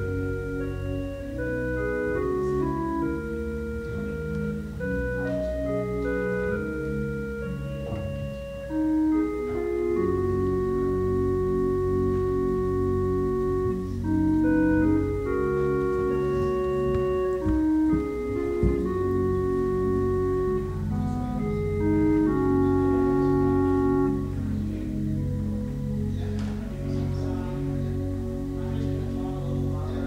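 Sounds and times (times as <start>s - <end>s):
organ playing slow chords: 0.0s - 30.0s
dull thumps: 16.5s - 19.2s.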